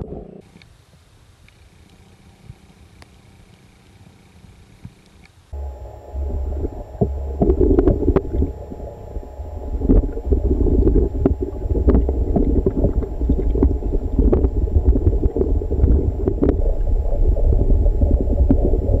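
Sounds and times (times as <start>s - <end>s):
underwater rumble of moving water: 5.6s - 19.0s.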